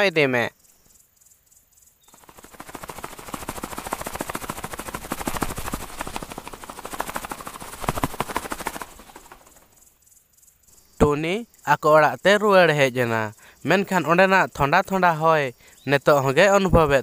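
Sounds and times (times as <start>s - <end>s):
bird wings fluttering: 2.0s - 10.0s.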